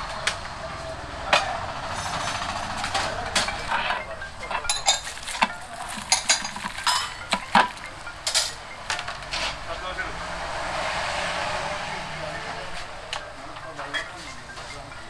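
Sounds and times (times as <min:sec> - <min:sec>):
metal utensils and dishes clinking: 0:00.2 - 0:09.7, 0:12.7 - 0:15.0.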